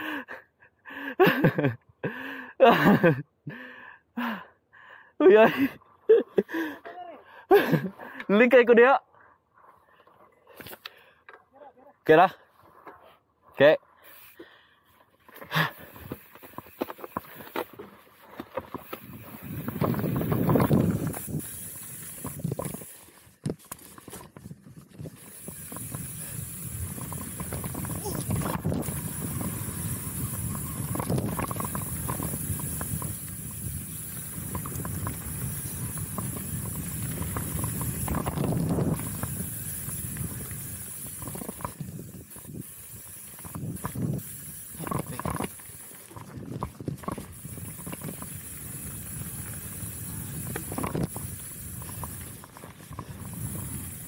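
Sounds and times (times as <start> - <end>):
bike rattling: 12.0 - 54.0
tyre noise on dirt: 14.0 - 54.0
wind over microphone: 18.7 - 23.0, 24.1 - 54.0.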